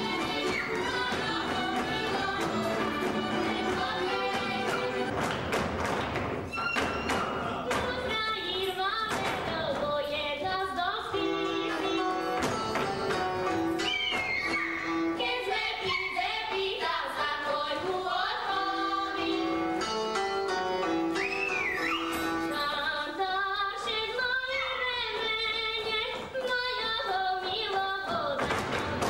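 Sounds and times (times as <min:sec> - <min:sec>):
people singing along: 0:00.0 - 0:05.3, 0:15.2 - 0:19.6
live folk band music: 0:00.0 - 0:09.0, 0:10.8 - 0:16.4, 0:18.4 - 0:23.2.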